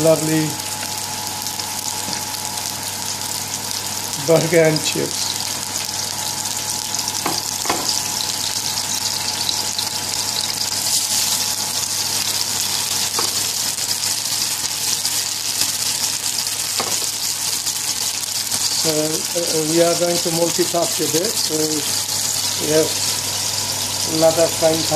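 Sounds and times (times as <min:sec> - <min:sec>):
patties sizzling in a frying pan: 0:00.0 - 0:24.9.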